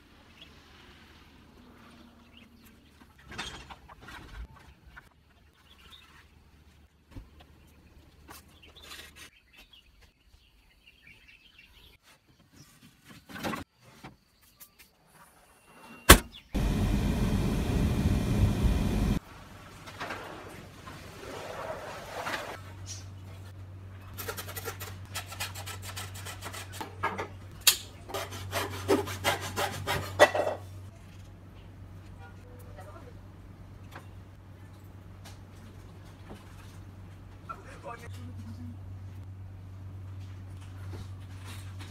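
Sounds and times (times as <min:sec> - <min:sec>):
hacksaw cutting wood: 0:28.1 - 0:30.4.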